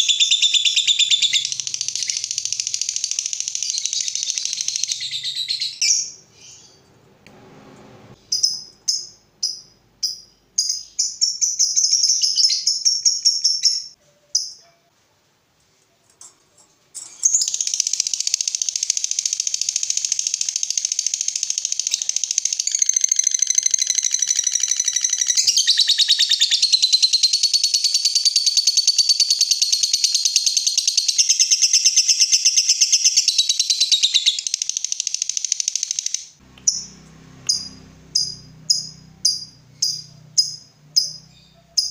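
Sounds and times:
lovebird chattering trill: 0.0s - 6.7s, 17.2s - 41.9s
lovebird chirps: 0.0s - 6.9s, 8.2s - 14.7s, 17.0s - 41.9s.

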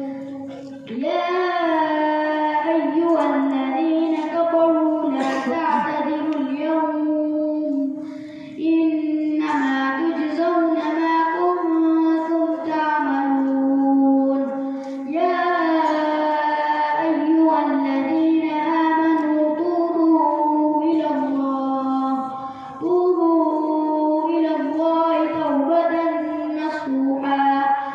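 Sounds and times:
boy reciting melodically: 0.0s - 27.9s.

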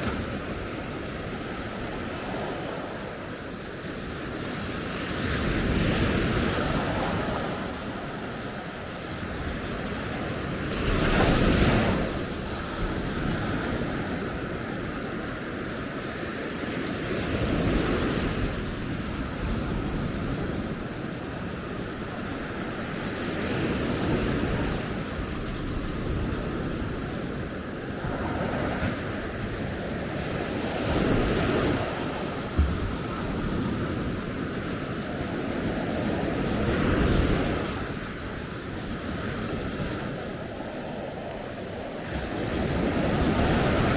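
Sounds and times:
waves breaking on beach: 0.0s - 43.9s
wind on microphone: 0.0s - 43.9s.

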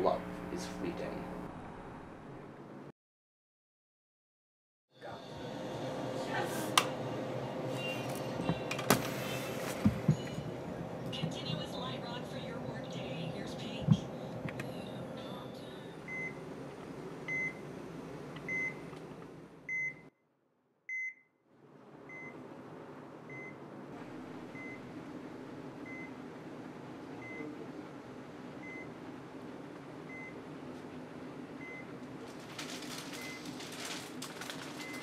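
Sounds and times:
room hum: 0.0s - 2.9s, 5.0s - 35.0s
heart monitor beeping: 16.1s - 16.4s, 17.3s - 17.6s.

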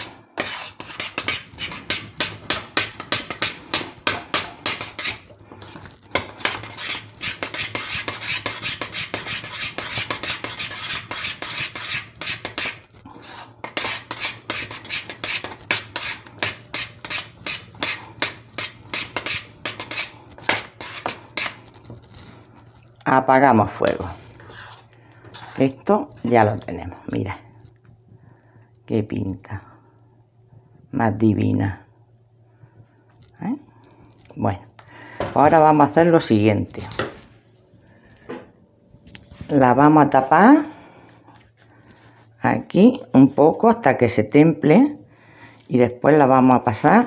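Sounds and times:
metal spoon scraping saucepan: 0.0s - 21.6s.

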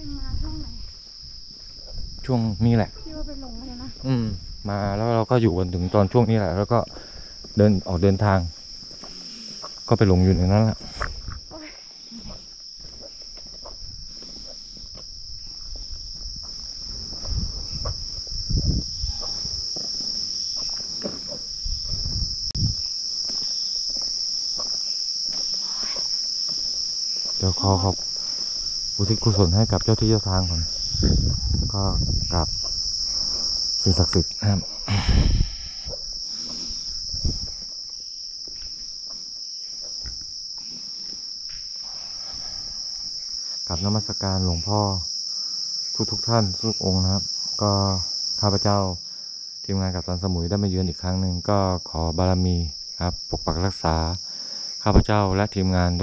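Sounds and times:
night insects chorus: 0.0s - 56.0s
low rustles and thumps: 12.9s - 22.9s.

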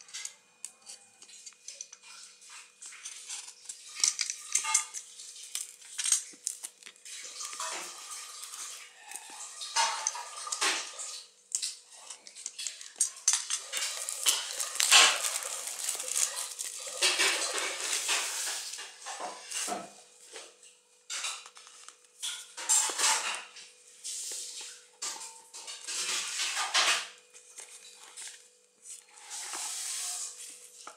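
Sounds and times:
plastic wrap crinkling: 2.4s - 10.0s, 12.2s - 18.8s.

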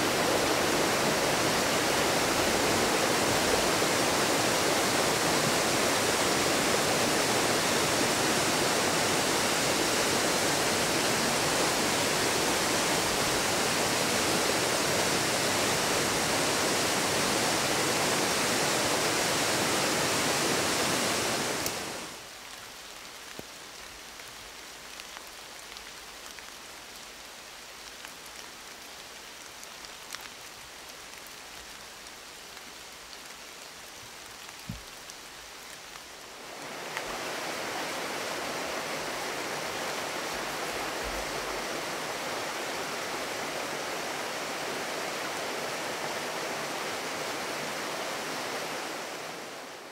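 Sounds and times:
river rapids roaring: 0.0s - 22.2s.

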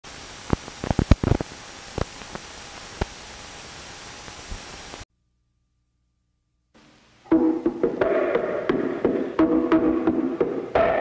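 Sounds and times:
crackles and pops: 0.0s - 5.1s
static hiss: 0.0s - 5.1s, 6.7s - 11.0s.

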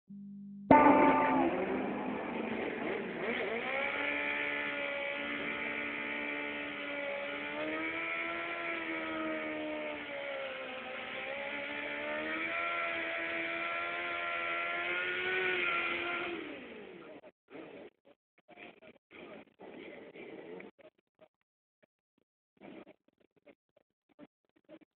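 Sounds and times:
motorcycle engines at high revs: 0.7s - 17.7s.

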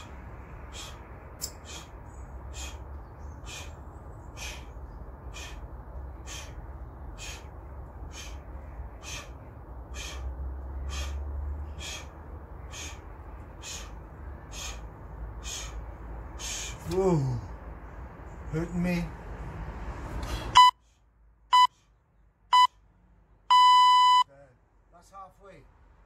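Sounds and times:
short forceful breaths: 0.0s - 18.4s, 19.3s - 22.1s
steady low rumble: 0.0s - 21.5s.

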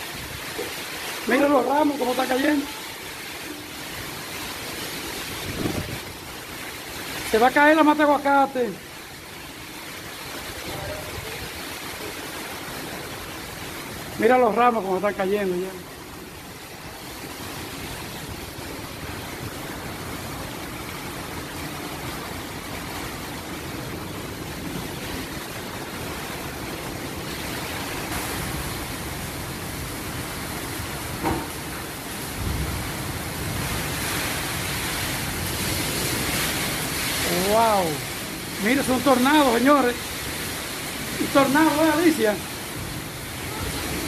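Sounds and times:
heavy rain: 0.0s - 44.0s
strong wind gusts: 5.2s - 6.4s
wind rumble on microphone: 5.3s - 6.4s.

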